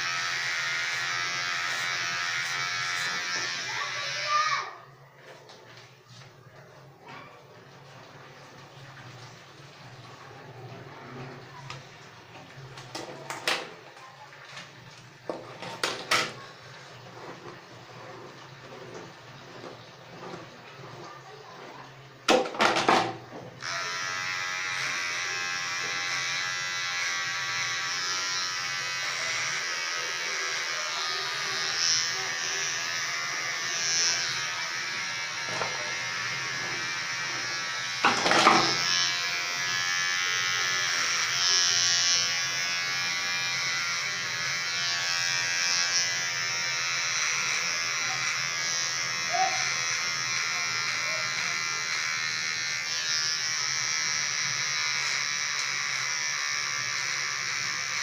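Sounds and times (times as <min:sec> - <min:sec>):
electric hair trimmer buzzing: 0:00.0 - 0:04.7, 0:22.3 - 0:58.0.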